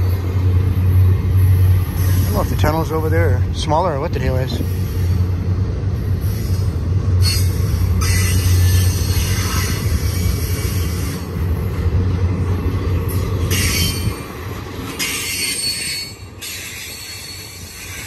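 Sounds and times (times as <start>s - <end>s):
train wheels rumbling on rail: 0.0s - 18.0s
high wheel squeal: 7.2s - 11.3s, 15.0s - 18.0s.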